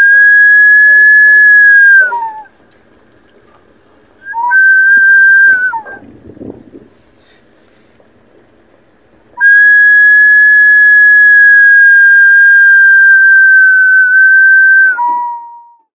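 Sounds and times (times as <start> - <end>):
kettle whistling: 0.0 - 2.5, 4.2 - 6.0, 9.4 - 15.9.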